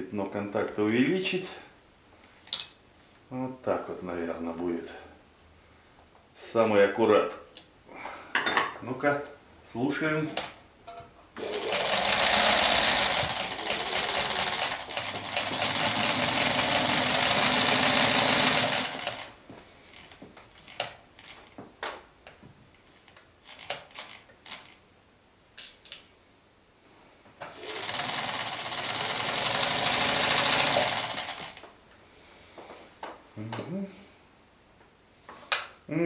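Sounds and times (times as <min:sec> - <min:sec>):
sewing machine running: 0:11.4 - 0:19.4, 0:27.5 - 0:31.6.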